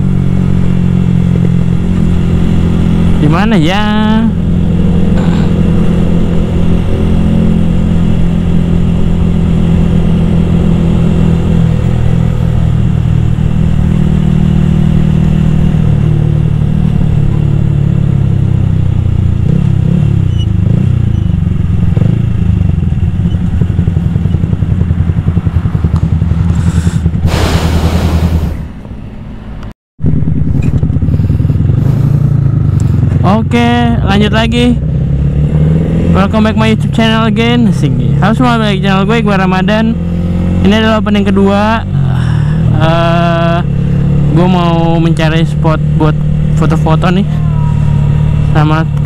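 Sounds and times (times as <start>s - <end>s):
motorcycle engine cruising: 0.0s - 49.0s
wind noise: 23.0s - 29.4s.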